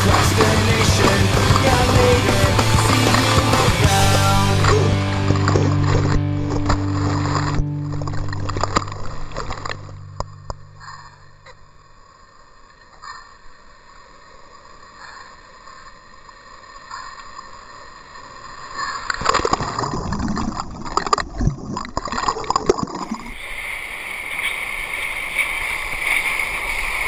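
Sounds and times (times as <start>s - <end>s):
rushing water: 0.0s - 10.1s, 15.5s - 27.0s.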